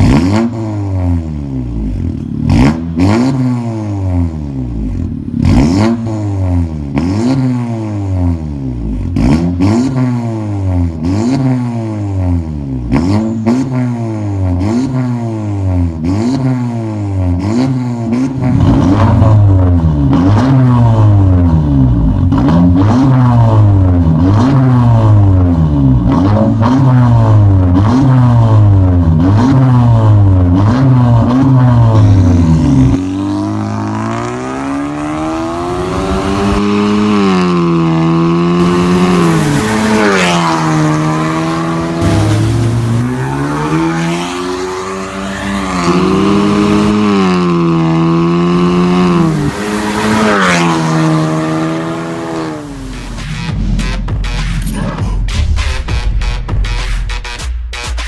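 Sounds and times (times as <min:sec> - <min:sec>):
car engine revving: 0:00.0 - 0:58.0
exhaust cracks: 0:38.6 - 0:47.8.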